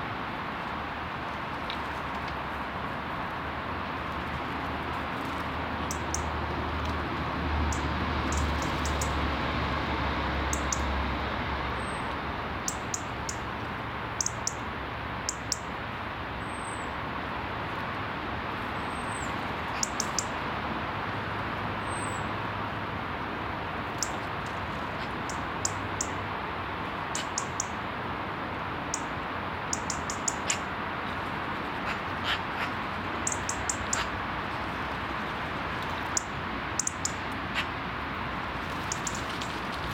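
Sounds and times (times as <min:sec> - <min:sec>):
birds calling: 0:07.7 - 0:09.2, 0:18.7 - 0:20.4, 0:23.8 - 0:26.2, 0:27.0 - 0:27.8, 0:28.8 - 0:35.2, 0:35.9 - 0:37.8, 0:38.7 - 0:39.9.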